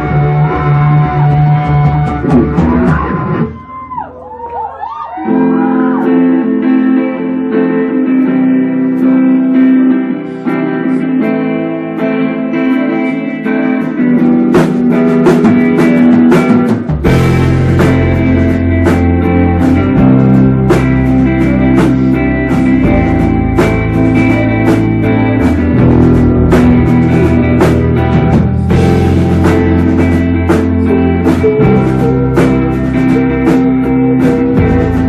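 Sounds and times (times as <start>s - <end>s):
drum kit beat: 0.0s - 4.6s, 12.5s - 35.0s
electric guitar: 0.0s - 35.0s.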